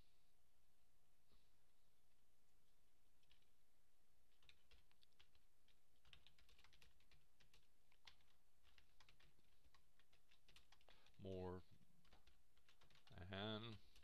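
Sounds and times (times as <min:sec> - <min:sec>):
faint keyboard typing: 0:03.1 - 0:03.6, 0:04.2 - 0:14.0.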